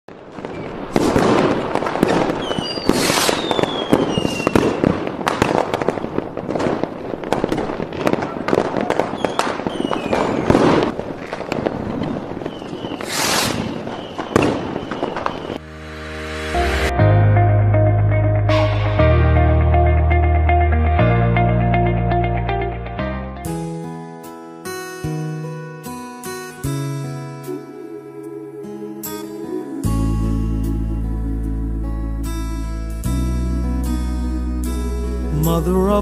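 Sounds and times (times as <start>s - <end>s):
fireworks cracks and bangs: 0.1s - 15.6s
fireworks falling whistles: 0.1s - 15.7s
music: 15.6s - 36.0s.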